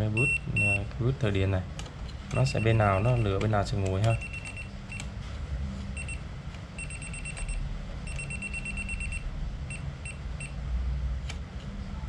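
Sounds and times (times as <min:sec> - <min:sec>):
voltage tester pen beeping: 0:02.3 - 0:03.4, 0:06.8 - 0:10.2.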